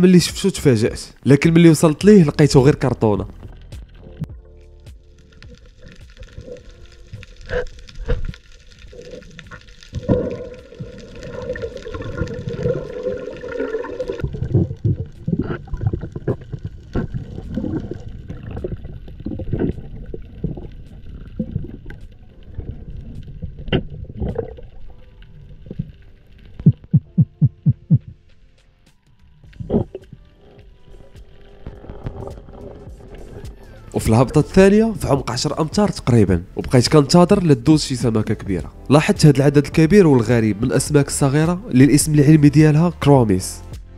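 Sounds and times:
underwater gurgling and bubbling: 5.3s - 28.2s, 29.5s - 33.9s.

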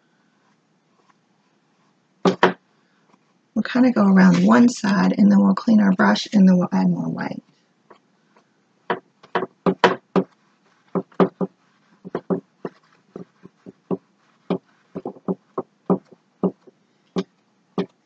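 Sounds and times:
paintbrush strokes on canvas: 10.1s - 16.8s.

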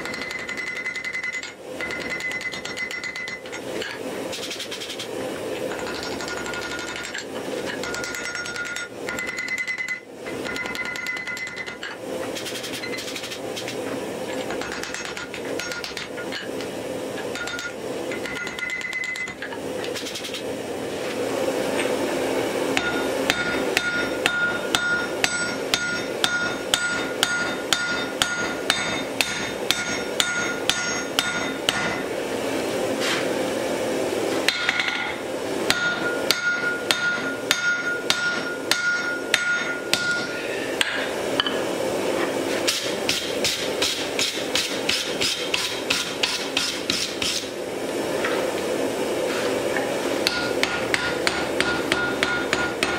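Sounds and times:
hammer striking iron on anvil: 0.0s - 5.0s, 5.7s - 13.7s, 14.5s - 16.7s, 17.3s - 20.4s, 22.8s - 32.1s, 34.5s - 41.6s, 42.7s - 47.5s, 50.2s - 52.9s
anvil ringing: 7.8s - 11.8s, 22.8s - 32.0s, 35.7s - 40.4s, 50.3s - 52.9s.

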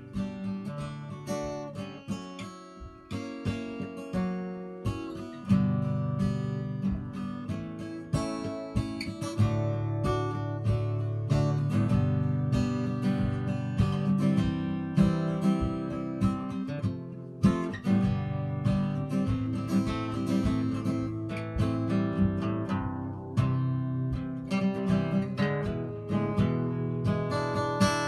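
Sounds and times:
acoustic guitar strumming chords: 0.0s - 28.0s.

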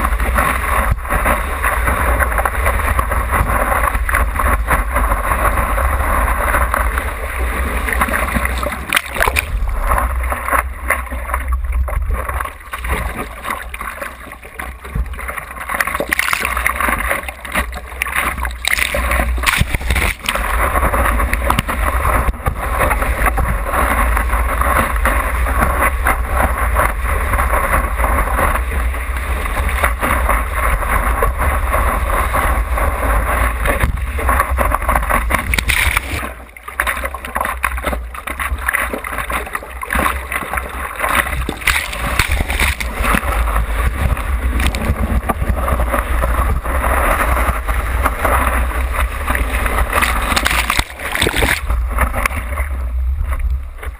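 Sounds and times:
low rumble of wind: 0.0s - 53.9s
water rushing and splashing: 0.0s - 53.9s.

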